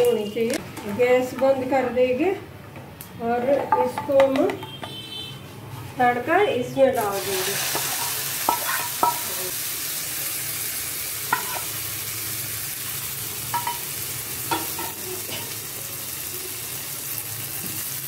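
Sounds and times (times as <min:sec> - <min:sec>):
hot oil sizzling: 0:07.0 - 0:18.0.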